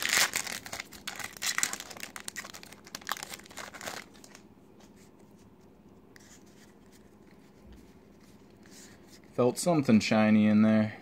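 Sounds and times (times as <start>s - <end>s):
foil wrapper crinkling: 0.0s - 4.4s
faint handling sounds: 0.7s - 10.0s.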